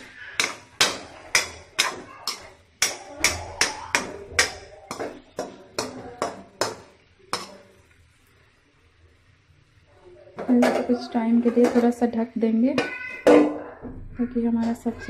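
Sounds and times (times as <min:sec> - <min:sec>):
metal spatula scraping iron pan: 0:00.0 - 0:06.8.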